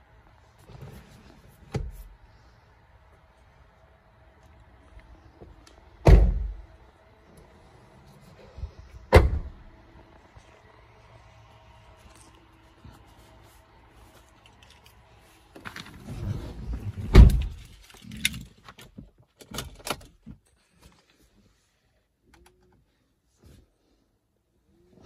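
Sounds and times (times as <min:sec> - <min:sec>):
heavy thump: 0:06.0 - 0:06.6, 0:09.1 - 0:09.6.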